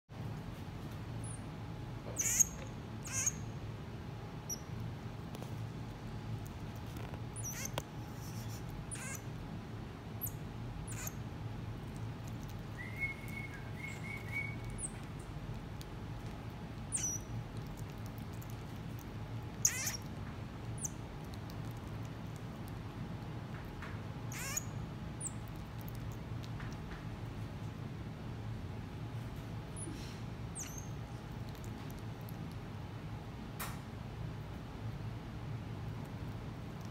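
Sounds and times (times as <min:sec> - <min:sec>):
steady low hum: 0:00.1 - 0:36.9
marmoset high-pitched calls: 0:01.2 - 0:01.5, 0:02.1 - 0:03.5, 0:04.4 - 0:04.7, 0:07.3 - 0:09.4, 0:10.2 - 0:11.2, 0:12.4 - 0:15.2, 0:16.8 - 0:18.4, 0:19.5 - 0:21.1, 0:24.3 - 0:25.7, 0:29.7 - 0:31.0.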